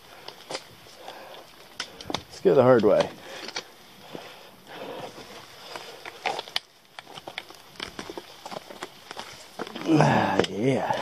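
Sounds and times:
poles clicking on rock: 1.3s - 3.7s, 5.7s - 10.6s.

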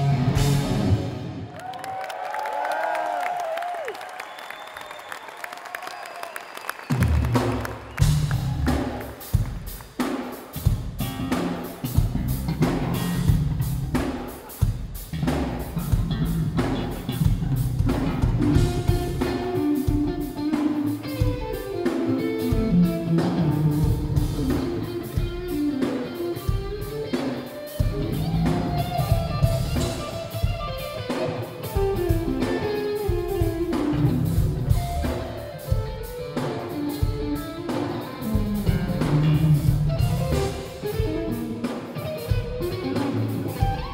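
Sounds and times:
drum kit playing: 0.0s - 1.4s, 6.9s - 43.9s
electric guitars playing: 0.0s - 1.5s, 10.5s - 43.9s.

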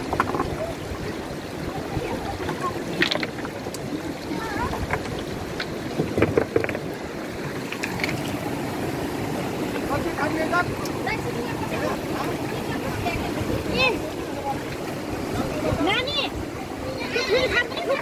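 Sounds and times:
stones knocking together: 0.0s - 0.7s, 2.5s - 3.9s, 4.6s - 7.0s
river rushing over stones: 0.0s - 18.0s.

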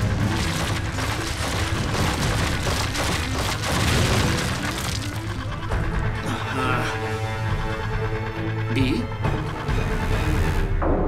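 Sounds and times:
rubble crashing: 0.0s - 6.1s
dramatic background score: 0.0s - 11.0s.

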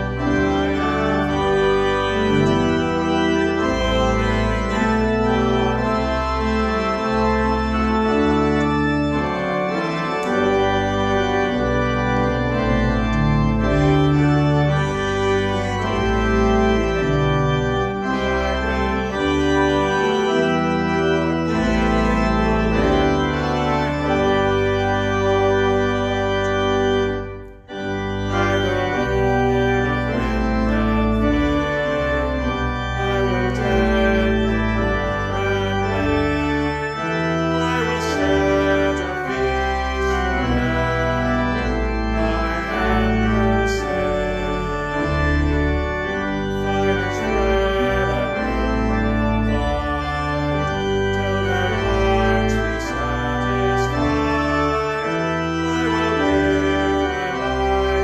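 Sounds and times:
organ playing a hymn: 0.0s - 58.0s
man singing: 28.2s - 32.3s, 32.9s - 36.7s, 37.6s - 44.8s, 46.6s - 54.5s.

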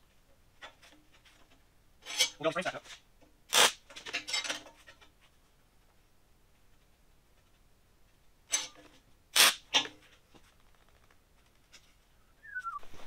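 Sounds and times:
steel frame pieces clanking: 0.6s - 3.0s, 3.6s - 5.2s, 8.5s - 10.1s.

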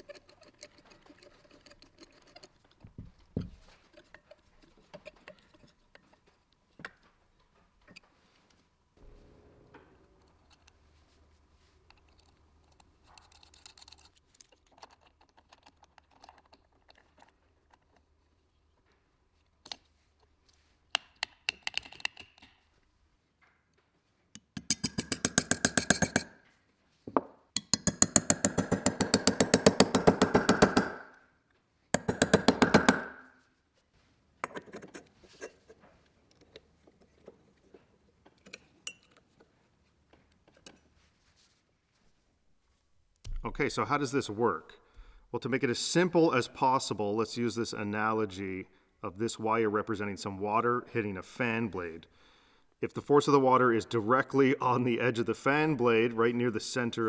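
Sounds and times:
hammer tapping metal punch: 24.4s - 26.3s, 27.6s - 31.1s, 32.0s - 33.2s.

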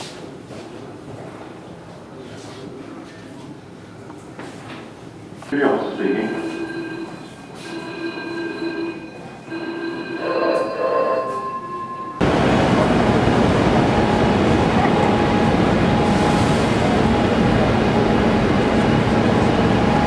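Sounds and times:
steady tones: 5.5s - 17.2s.

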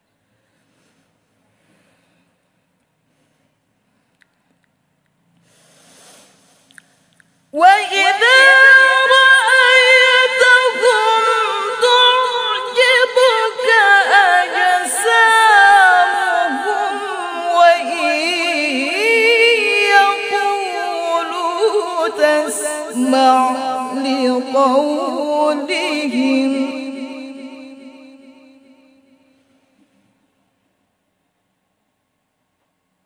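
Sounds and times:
woman reciting melodically: 7.5s - 28.8s.

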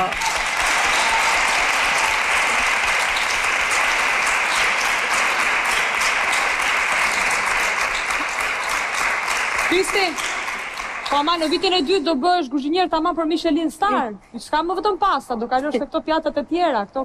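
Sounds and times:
audience applauding: 0.0s - 11.9s.

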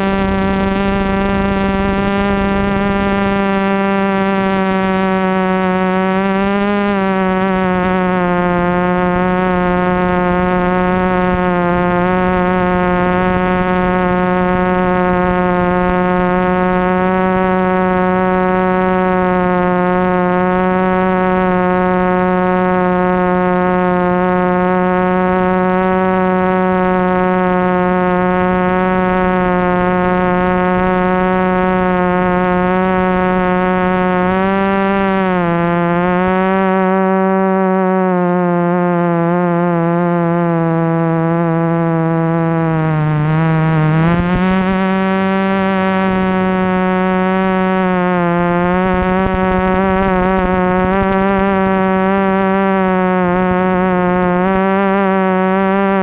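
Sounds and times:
drone motors buzzing: 0.0s - 56.0s.

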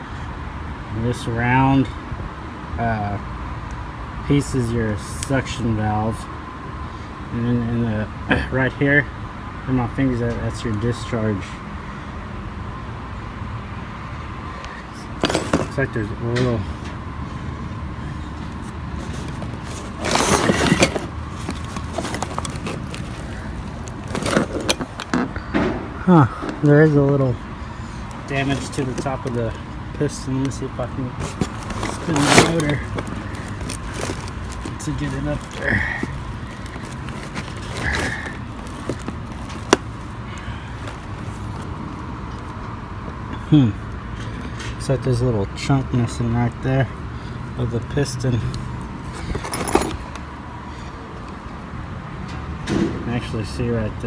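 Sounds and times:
low background hum: 14.0s - 44.7s
rustling on cardboard: 18.5s - 25.2s, 31.0s - 41.8s.

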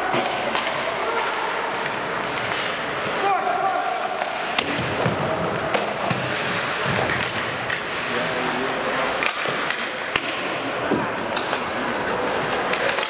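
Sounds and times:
skates scraping on ice: 0.0s - 13.0s
sticks clacking on puck: 0.0s - 13.0s.

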